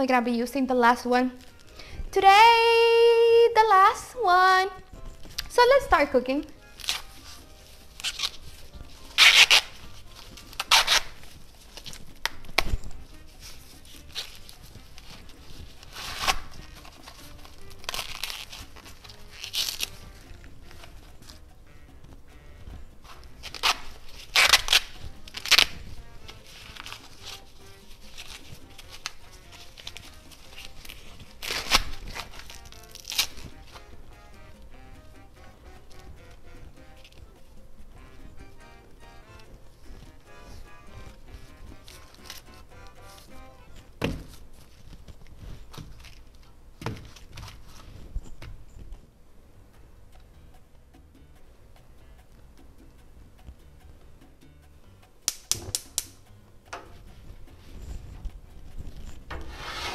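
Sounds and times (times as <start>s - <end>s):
soft background music: 0.0s - 59.9s
kitchen handling noises: 58.8s - 59.9s.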